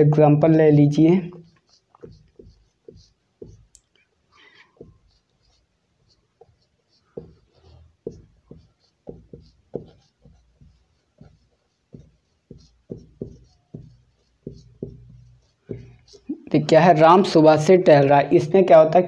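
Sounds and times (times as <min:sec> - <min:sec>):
marker writing on whiteboard: 0:00.8 - 0:17.9.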